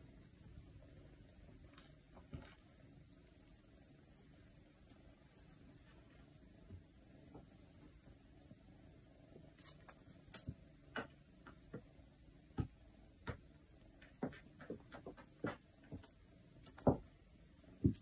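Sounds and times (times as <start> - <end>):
paws scrabbling on wooden floor: 14.0 - 17.0.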